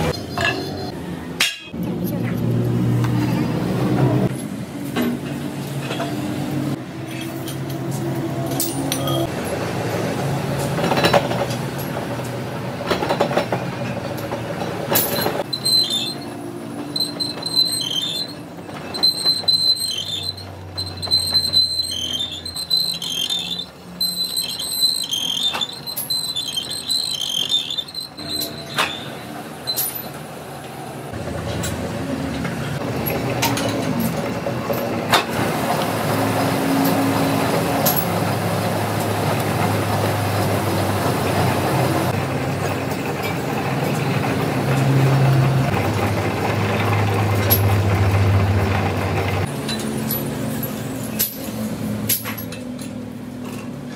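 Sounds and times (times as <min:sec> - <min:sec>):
high squeal of cutting tool: 0:15.4 - 0:30.0.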